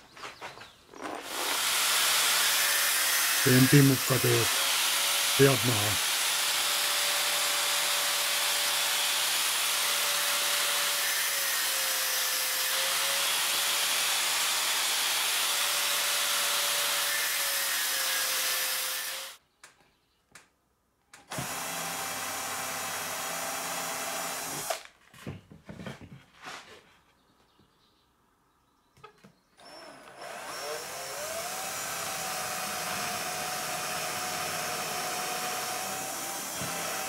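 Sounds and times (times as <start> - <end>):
drill drilling into wood: 1.0 - 19.4, 21.3 - 24.9, 29.6 - 37.0.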